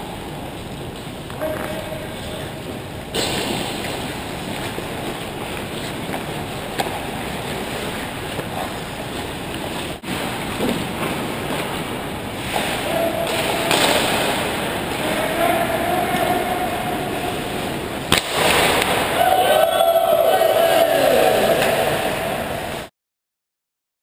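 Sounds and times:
rushing rink noise: 0:03.2 - 0:22.9.

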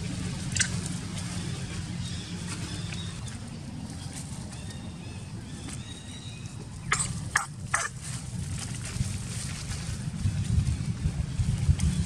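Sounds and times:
gusty wind on microphone: 0:07.1 - 0:12.0.

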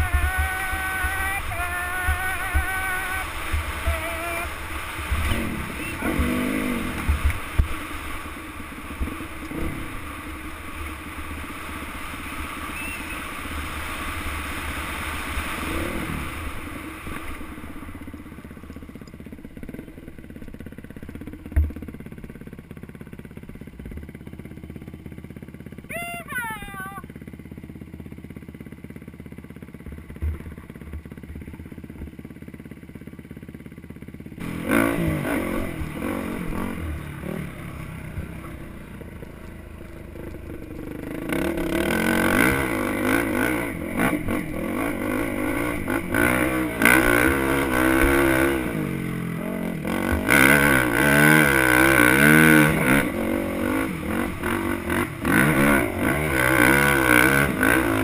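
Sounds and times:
engine revving: 0:00.0 - 0:17.6, 0:34.4 - 0:58.0
dirt bike engine running: 0:00.0 - 0:58.0.

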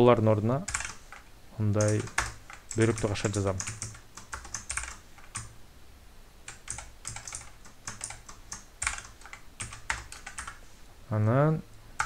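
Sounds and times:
computer keyboard typing: 0:00.7 - 0:05.5, 0:06.5 - 0:10.6.

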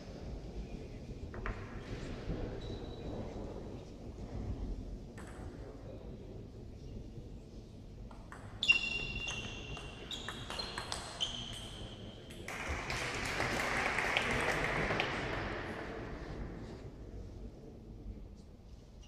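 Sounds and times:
table tennis ball hits: 0:08.1 - 0:15.5
spectators applauding: 0:12.5 - 0:15.9.

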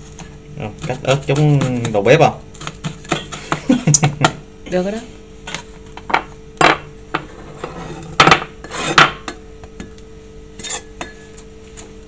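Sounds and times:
faint steady hum: 0:00.0 - 0:12.0
dishes knocking and clinking: 0:06.0 - 0:07.3, 0:08.1 - 0:09.9.

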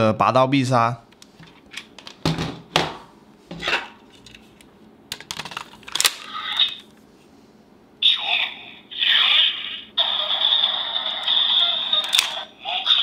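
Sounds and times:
toy electronic sound effect: 0:09.0 - 0:13.0
plastic toy sword clicking: 0:12.0 - 0:12.4.

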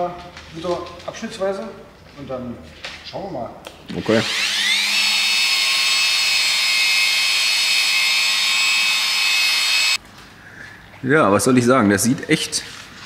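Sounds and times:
rotary polisher whining: 0:04.2 - 0:10.0.

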